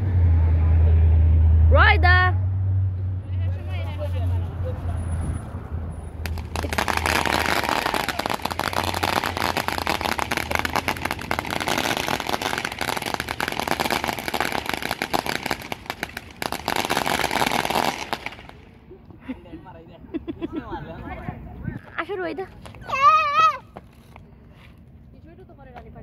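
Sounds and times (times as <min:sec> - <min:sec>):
firework fountain crackling: 0:06.2 - 0:19.0.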